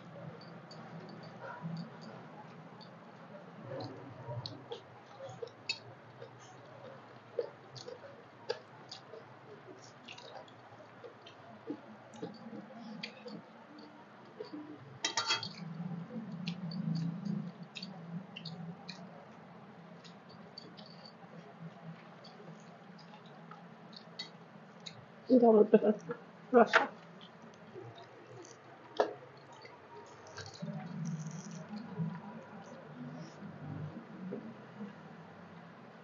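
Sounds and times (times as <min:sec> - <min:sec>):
lip smacks and chewing: 0:03.8 - 0:14.6
clatter on steel plate: 0:15.0 - 0:15.5.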